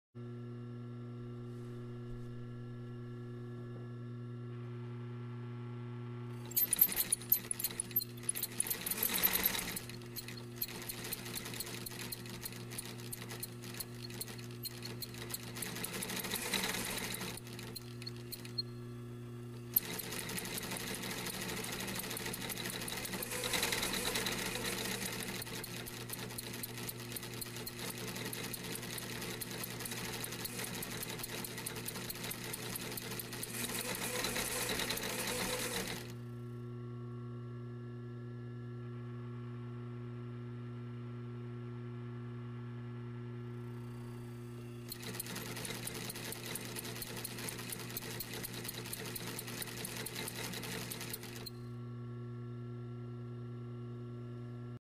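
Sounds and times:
sewing machine stitching: 6.4 - 18.6, 19.6 - 36.2, 44.9 - 51.5.

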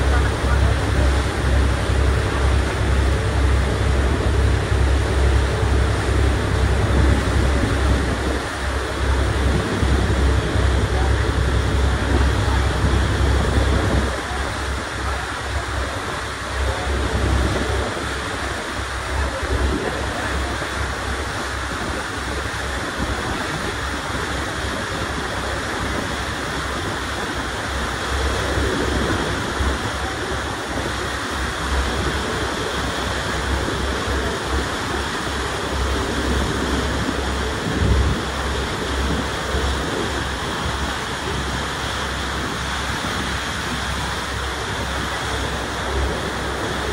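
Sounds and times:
water rushing past hull: 0.0 - 46.9
wind buffeting microphone: 0.1 - 46.9.

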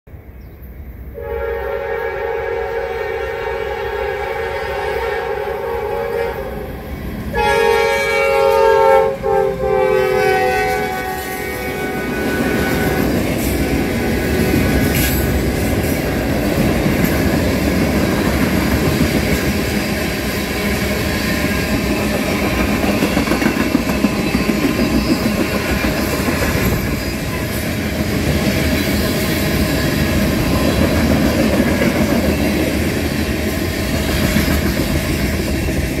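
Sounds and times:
train wheels rumbling on rails: 2.9 - 36.0
wheels clickety-clack: 16.4 - 20.1, 21.3 - 33.3, 33.9 - 36.0.

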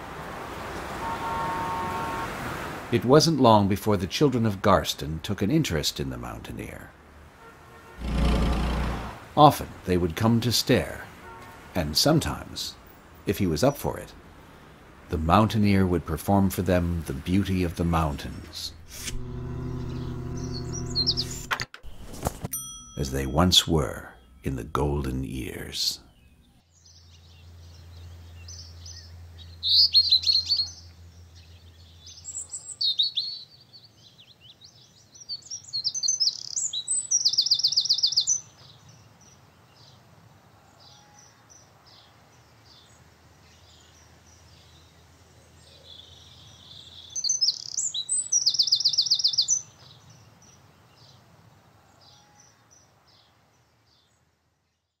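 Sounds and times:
low hum: 18.7 - 22.1
loud rapid bird trills: 19.7 - 21.5, 35.0 - 38.6, 46.4 - 49.8
songbird chirping and singing: 19.7 - 21.5, 23.0 - 40.0, 40.7 - 51.3.

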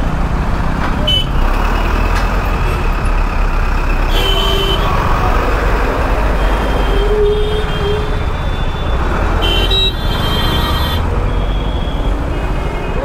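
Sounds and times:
traffic rumble and road noise: 0.0 - 13.0
vehicle horn tones: 4.1 - 4.9, 9.4 - 13.0.

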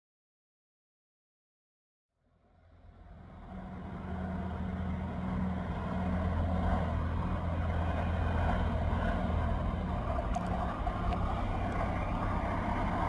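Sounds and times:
rail vehicle passing with low hum: 2.2 - 13.0
rolling noise on track: 2.3 - 13.0.

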